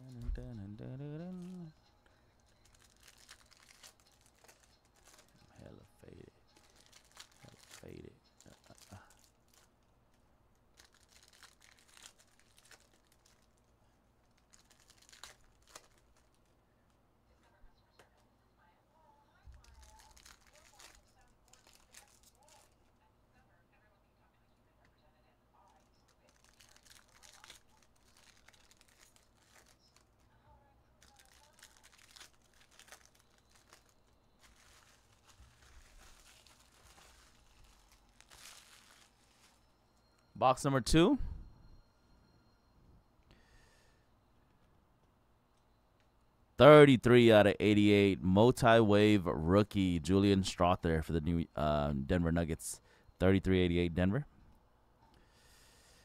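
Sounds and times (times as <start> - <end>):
trading cards rustling and clicking: 2.4 - 5.8, 6.5 - 9.7, 14.3 - 16.6, 25.7 - 30.2, 31.0 - 39.6
foil wrappers crinkling and tearing: 2.4 - 16.6, 19.5 - 22.8, 25.7 - 30.3, 31.0 - 39.7.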